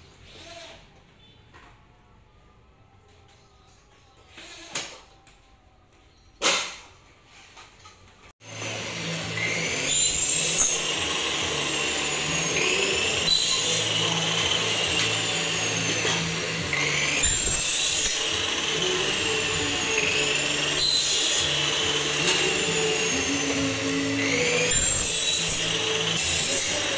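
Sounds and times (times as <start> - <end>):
electric power tool whining: 8.4 - 26.9.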